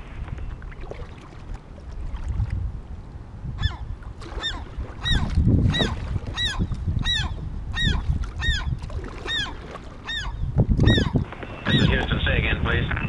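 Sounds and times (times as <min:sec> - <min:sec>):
paddle strokes splashing: 0:00.0 - 0:03.0, 0:03.8 - 0:12.4
kayak squeaking: 0:04.4 - 0:13.0.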